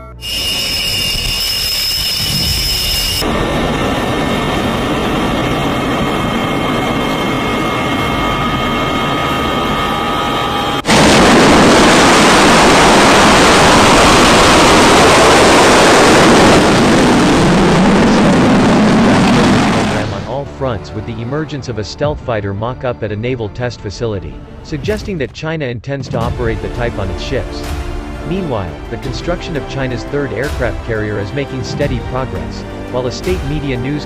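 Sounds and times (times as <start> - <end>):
faint high whine: 0.0 - 20.4
jet engines at full thrust: 0.2 - 20.3
jet engine noise: 0.2 - 21.8.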